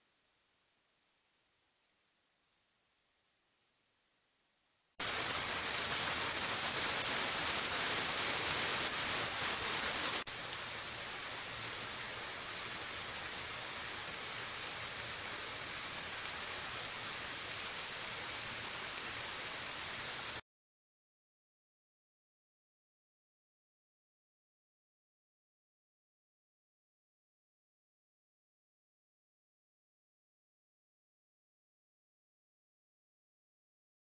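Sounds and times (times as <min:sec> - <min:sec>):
steady high hiss: 0:00.0 - 0:20.4.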